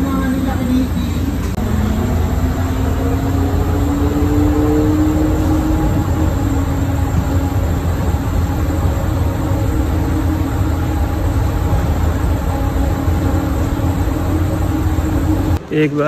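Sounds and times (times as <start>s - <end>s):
faint hum: 0.0s - 16.0s
train running low rumble: 0.0s - 16.0s.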